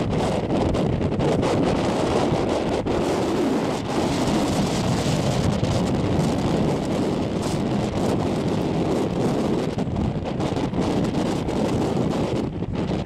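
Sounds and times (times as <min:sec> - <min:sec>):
storm wind buffeting microphone: 0:00.0 - 0:13.0.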